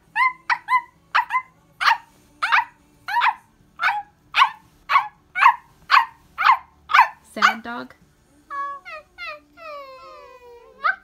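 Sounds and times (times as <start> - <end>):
child imitating dog whimpers: 8.5 - 11.0.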